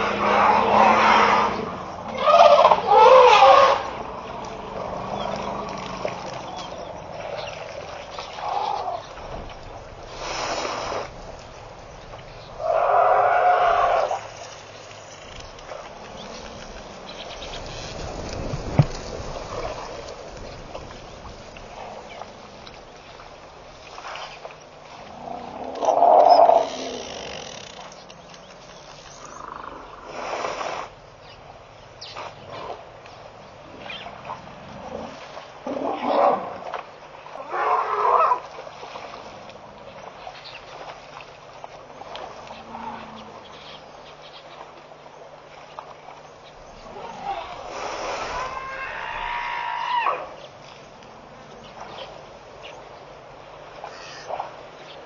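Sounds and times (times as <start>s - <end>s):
elephant splashing water: 0.0s - 55.0s
noisy outdoor hiss: 0.0s - 55.0s
faint rustles and clicks: 14.0s - 29.7s.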